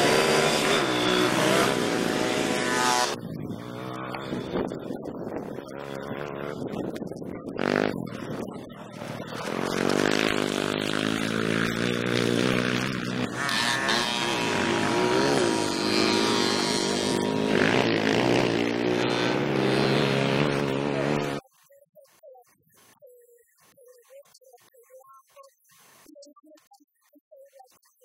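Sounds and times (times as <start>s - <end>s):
dirt bike engine revving: 0.0s - 21.4s.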